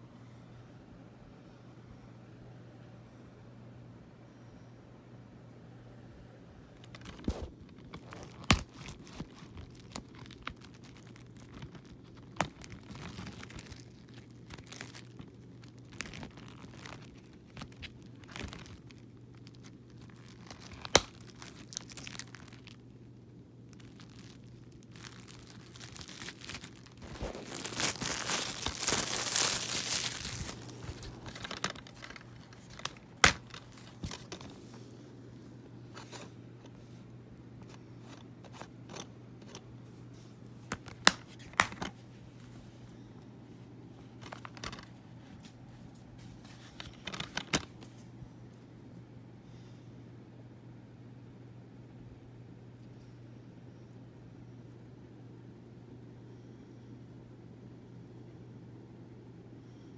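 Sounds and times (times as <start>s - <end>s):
plastic wrap crinkling: 6.8s - 34.8s, 44.0s - 48.1s
plastic case snapping open: 30.4s - 34.5s, 40.7s - 41.9s.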